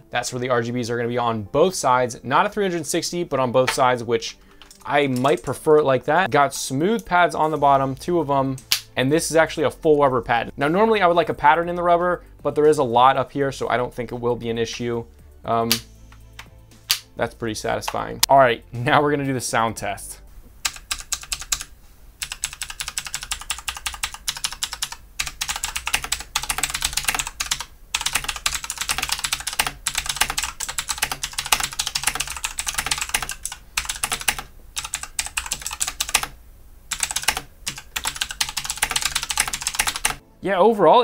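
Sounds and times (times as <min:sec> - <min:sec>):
mechanical keyboard typing: 0:20.6 - 0:40.2.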